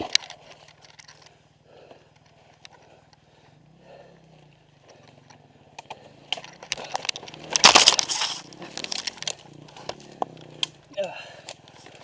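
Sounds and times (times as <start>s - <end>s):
brush and twigs crackling: 0.0s - 12.0s
dirt bike engine idling: 0.0s - 12.0s.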